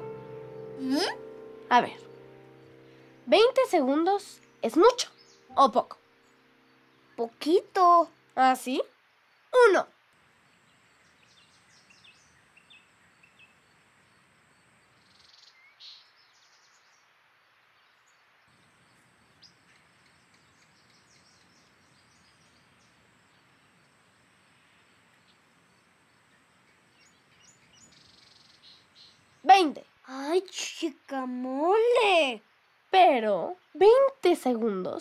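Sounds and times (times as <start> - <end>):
bird chirps: 0.0 - 8.5, 10.4 - 17.1, 17.8 - 29.5.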